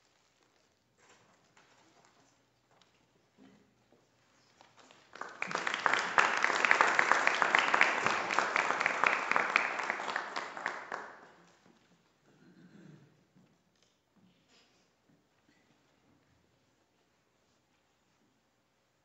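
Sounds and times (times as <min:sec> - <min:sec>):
audience applauding: 0:05.1 - 0:11.4.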